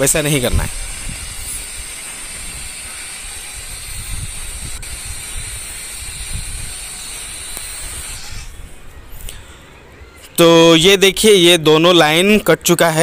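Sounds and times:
angle grinder cutting brick: 0.4 - 8.6.

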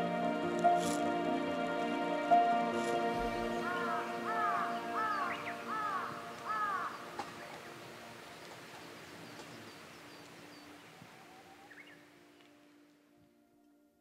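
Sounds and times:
held music chord: 0.0 - 9.7
crows cawing: 3.5 - 7.6.

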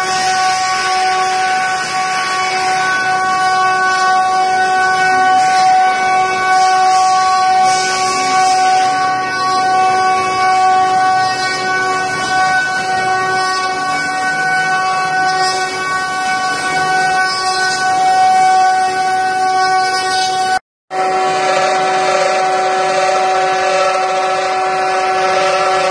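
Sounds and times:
router spindles whining: 0.0 - 25.9
hiss of wood cutting: 6.7 - 9.0.

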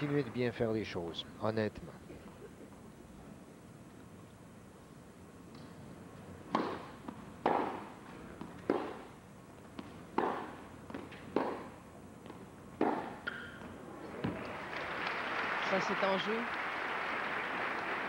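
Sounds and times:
tennis racquet hitting ball: 6.5 - 9.1, 9.7 - 14.4.

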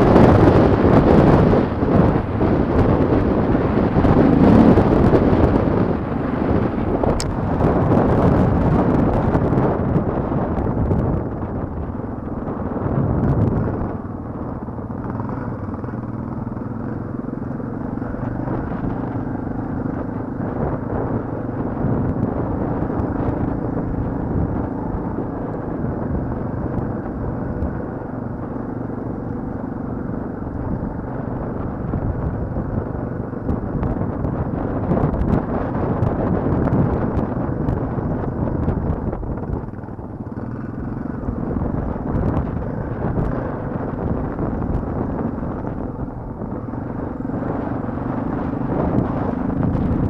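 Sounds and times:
off-road motorcycle engine: 0.0 - 50.0.

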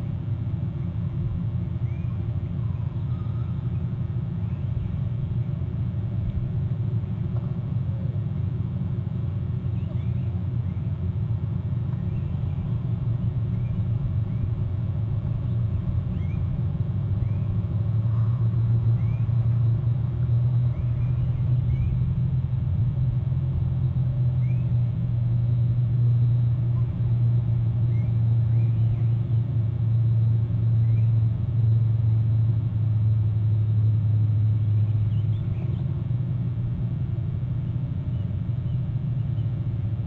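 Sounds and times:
steady low rumble: 0.0 - 40.0
faint bird chirps: 1.8 - 5.0, 9.6 - 10.9, 12.0 - 14.6, 15.4 - 16.6, 17.2 - 22.1, 23.9 - 24.8, 26.2 - 30.1, 30.7 - 31.8, 34.5 - 36.0.

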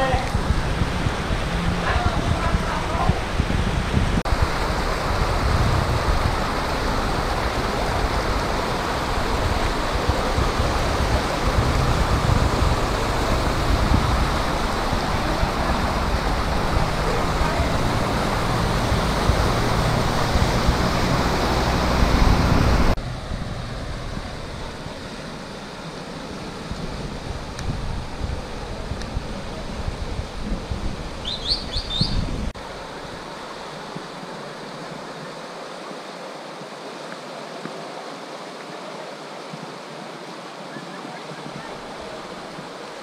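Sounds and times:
wind buffeting microphone: 0.0 - 33.2
floodwater rushing: 0.0 - 43.0.

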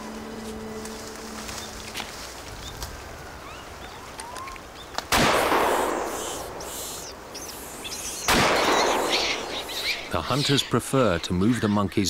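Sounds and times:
shotgun blast with echo: 5.1 - 6.6, 8.3 - 9.7.

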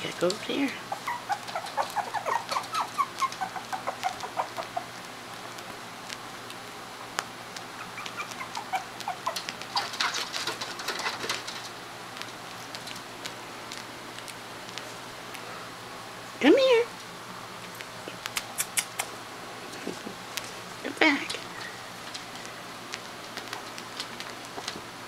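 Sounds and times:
puppies whimpering and yipping: 0.8 - 5.0, 7.7 - 10.3.

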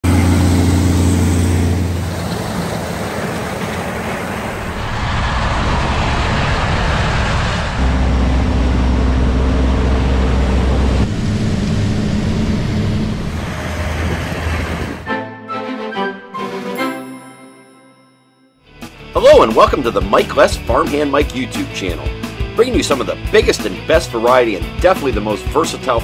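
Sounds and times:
diesel engines running: 0.0 - 15.2.

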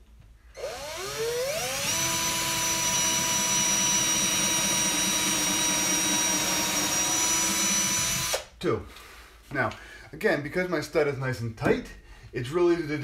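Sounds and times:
drill boring into wood: 0.6 - 8.5.

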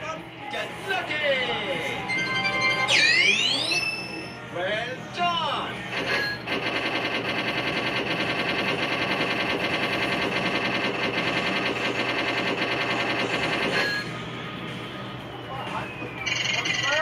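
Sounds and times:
held electronic tones: 2.0 - 4.4
rapid electronic ticking: 5.9 - 14.1.

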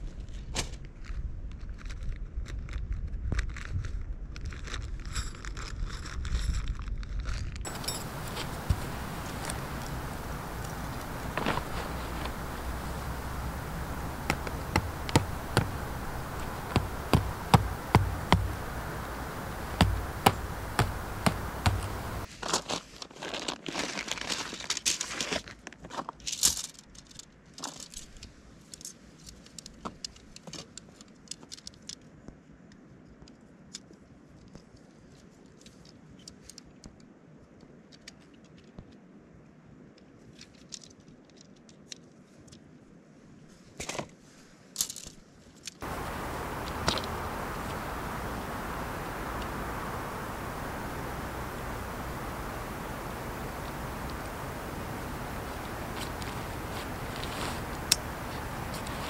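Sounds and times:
steady hiss: 7.7 - 22.3, 45.8 - 59.0
tent pole clicks and taps: 7.7 - 22.3, 45.8 - 59.0
tent fabric rustling: 7.7 - 25.3, 45.8 - 59.0.

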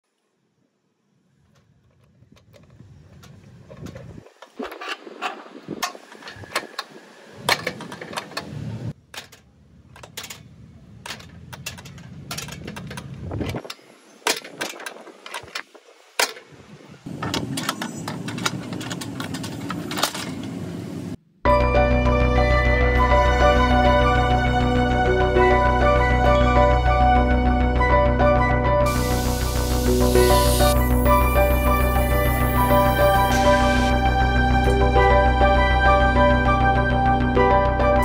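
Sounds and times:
padlock and latch clicking: 7.5 - 16.4.

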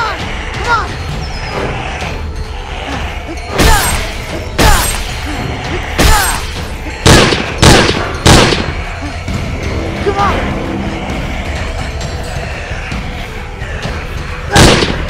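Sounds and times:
background music: 0.0 - 15.0
loud sharp bangs: 6.0 - 8.8, 14.6 - 15.0.

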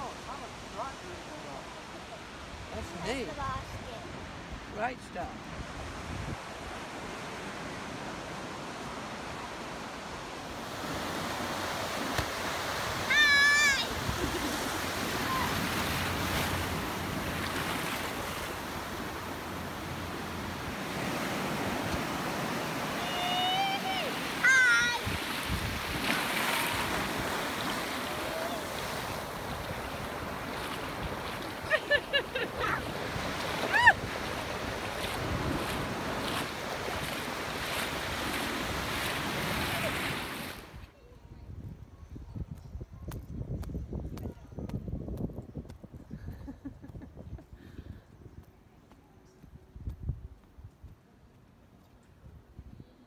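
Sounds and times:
surf washing on shore: 0.0 - 40.9
wind buffeting microphone: 5.5 - 6.9, 13.9 - 48.7, 49.4 - 51.0
child squealing: 13.1 - 13.9, 15.2 - 15.6, 23.0 - 25.1, 33.6 - 34.0.

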